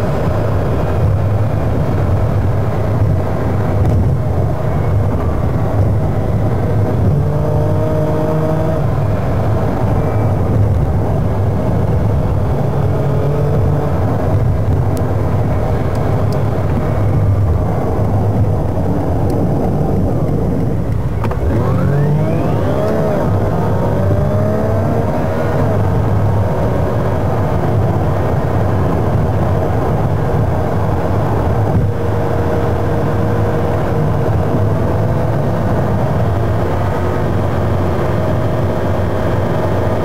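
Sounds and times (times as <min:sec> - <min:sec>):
car engine and road noise: 0:00.0 - 0:40.0
rising sweep: 0:15.6 - 0:27.2.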